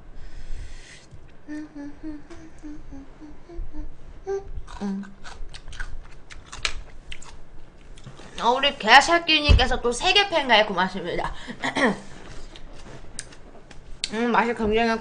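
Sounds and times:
brief vocal sounds: 0:00.6 - 0:05.2
woman humming a tune: 0:01.4 - 0:05.2.

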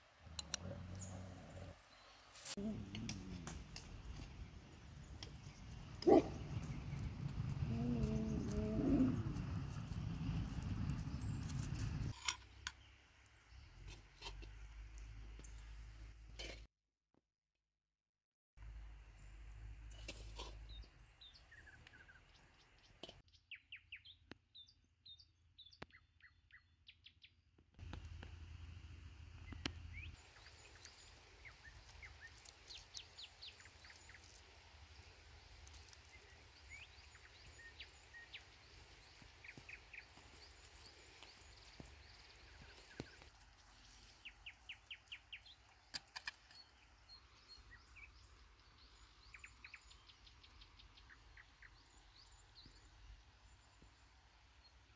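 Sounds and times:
faint birds chirping: 0:00.0 - 0:16.0, 0:29.4 - 0:54.9.

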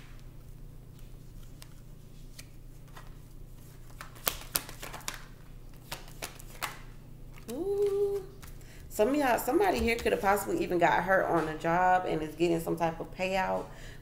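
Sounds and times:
cards shuffled by hand: 0:00.3 - 0:08.6
cards snapping: 0:03.8 - 0:08.6.

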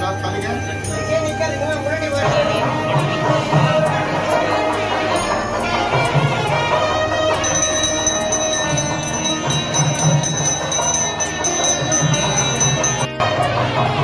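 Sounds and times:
low beats: 0:00.0 - 0:13.1
temple music: 0:00.0 - 0:14.0
bell ringing: 0:06.8 - 0:13.2.

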